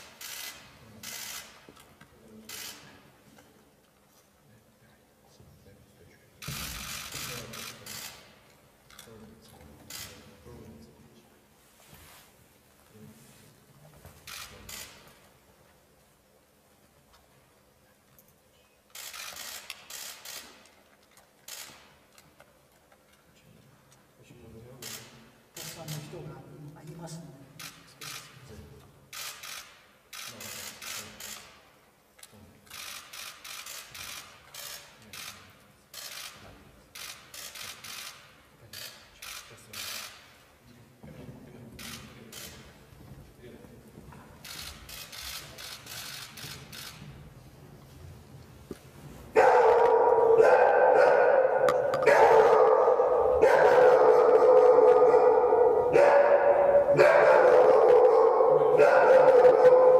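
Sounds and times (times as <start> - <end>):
camera shutters firing in bursts: 0.0 - 1.9, 6.4 - 8.4, 9.8 - 10.3, 14.2 - 15.2, 18.9 - 22.2, 24.8 - 26.2, 27.6 - 28.4, 29.1 - 31.7, 32.7 - 40.4, 41.8 - 42.8, 44.4 - 47.1, 56.4 - 59.9
dog barking loudly: 49.4 - 59.9.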